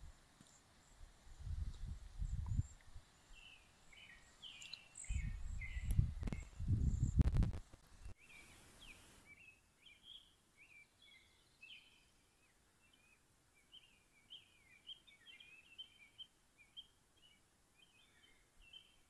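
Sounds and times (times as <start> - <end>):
faint songbird chirps and warbling: 0.5 - 7.2, 8.0 - 19.0.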